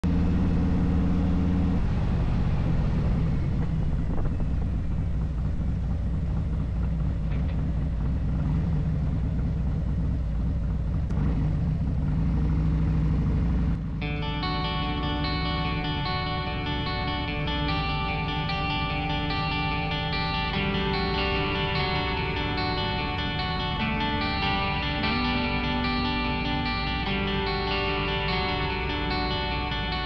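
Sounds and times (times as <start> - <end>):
motorcycle engine running: 0.0 - 30.0
wind and road noise: 0.0 - 30.0
electric guitar music: 13.8 - 30.0.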